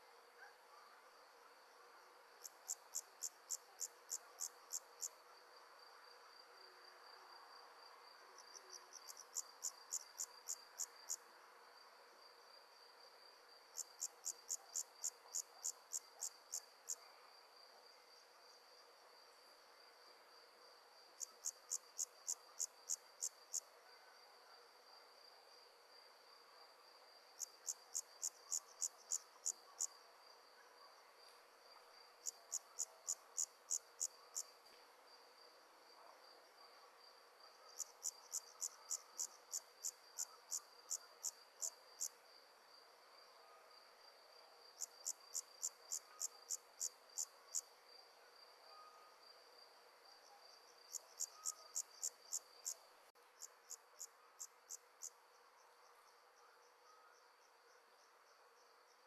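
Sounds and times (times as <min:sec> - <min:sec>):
insects chirping: 0:08.4 - 0:11.2, 0:21.1 - 0:23.7, 0:27.4 - 0:30.6, 0:31.2 - 0:34.6, 0:50.7 - 0:52.8
steady high insect trill: 0:08.4 - 0:11.3, 0:13.2 - 0:17.1, 0:21.1 - 0:23.7, 0:27.2 - 0:30.6, 0:31.9 - 0:34.6, 0:37.0 - 0:42.2, 0:44.7 - 0:49.6, 0:50.4 - 0:52.8.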